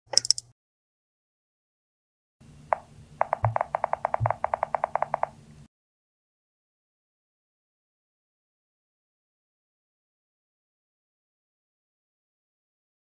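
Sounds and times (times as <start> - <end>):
keyboard key clicks: 0.1 - 0.5, 3.2 - 5.3.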